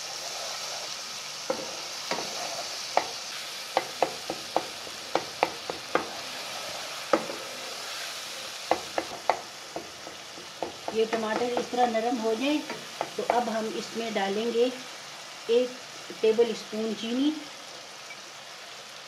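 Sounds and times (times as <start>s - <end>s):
spatula scraping a pan: 0.0s - 11.9s
food sizzling in oil: 0.0s - 19.0s.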